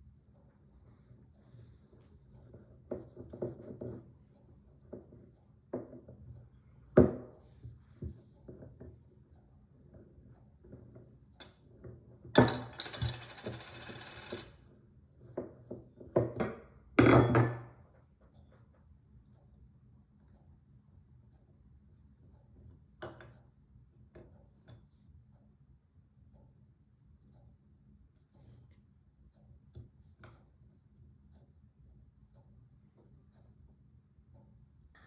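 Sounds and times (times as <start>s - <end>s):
clay tools knocking on wooden table: 5.7s - 6.2s, 7.0s - 7.4s, 15.4s - 17.8s.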